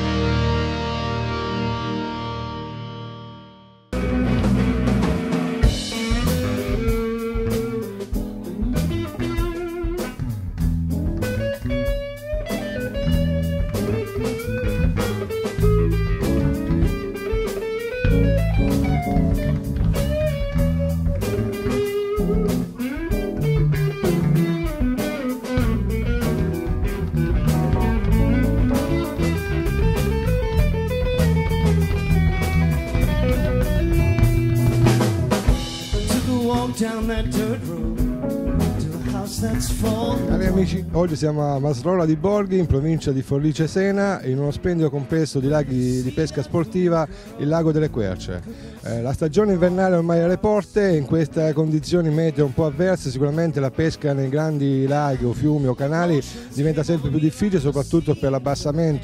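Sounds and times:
guitar melody: 0:00.0 - 0:59.0
drums: 0:03.9 - 0:59.0.

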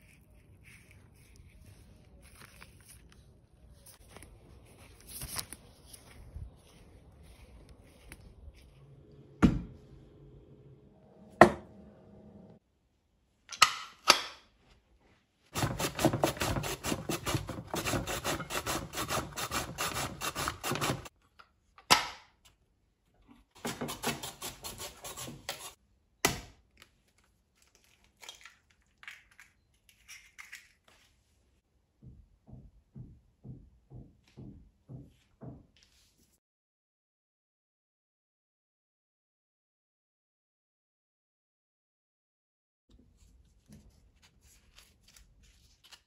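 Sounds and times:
courgette rasping on slicer: 0:15.6 - 0:21.1.

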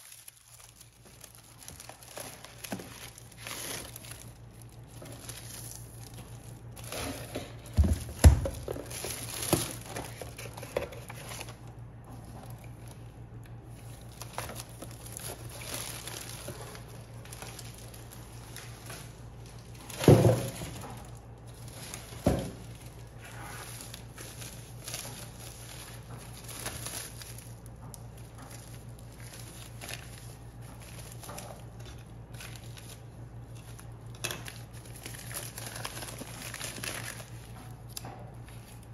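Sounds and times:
packaging crinkling and rustling: 0:00.0 - 0:38.9
steady low hum: 0:00.0 - 0:38.9.

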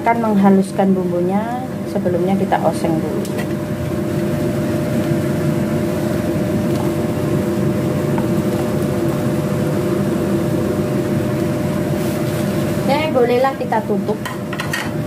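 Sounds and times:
mechanical hum and rumble: 0:00.0 - 0:15.0.

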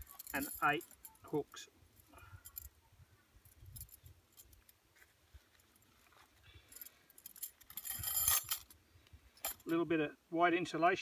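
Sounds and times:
metal hooks clinking: 0:00.0 - 0:01.4, 0:06.6 - 0:08.8, 0:09.4 - 0:09.8.

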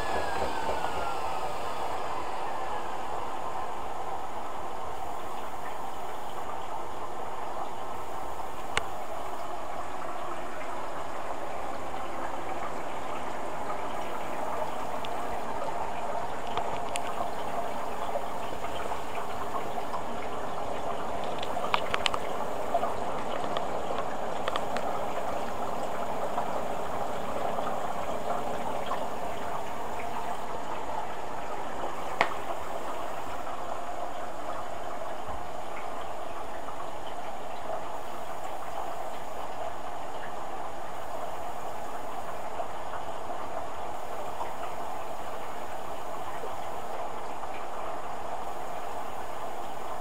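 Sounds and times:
water rushing into washing machine: 0:00.0 - 0:34.6.

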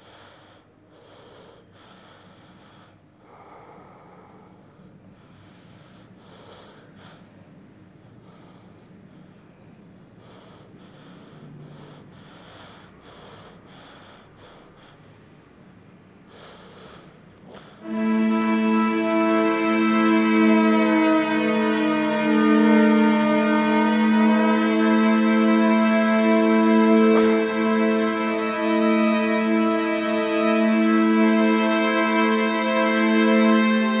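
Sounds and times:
man breathing heavily: 0:00.0 - 0:34.0.

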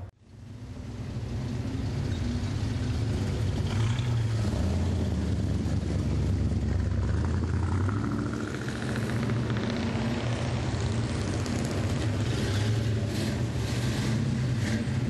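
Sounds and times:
car engines with deep exhaust: 0:00.0 - 0:15.0.

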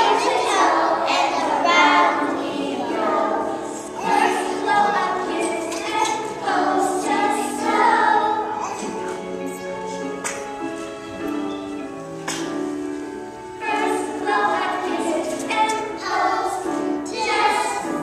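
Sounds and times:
choir singing: 0:00.0 - 0:08.9, 0:13.6 - 0:18.0.

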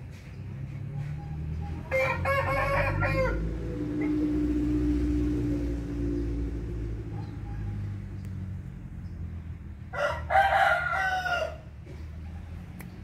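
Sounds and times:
rooster crowing: 0:01.7 - 0:04.8, 0:09.9 - 0:11.8.

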